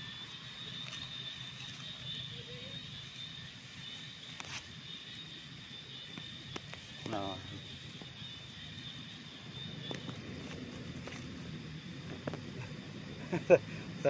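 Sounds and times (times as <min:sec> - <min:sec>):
high-pitched insect drone: 0:00.0 - 0:14.0.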